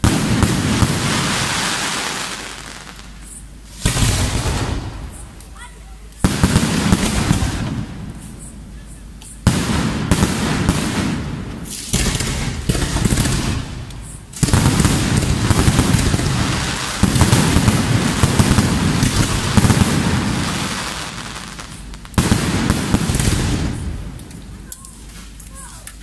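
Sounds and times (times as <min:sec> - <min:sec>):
firework shells bursting: 0:00.0 - 0:26.0
crackling of small pops: 0:05.0 - 0:06.6, 0:11.5 - 0:19.8, 0:21.3 - 0:26.0.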